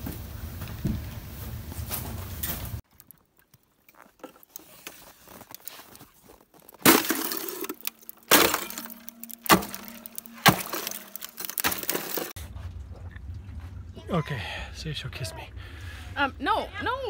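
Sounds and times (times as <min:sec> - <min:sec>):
ice cracking under strikes: 0:03.8 - 0:12.4
loose ice clinking: 0:06.8 - 0:12.4.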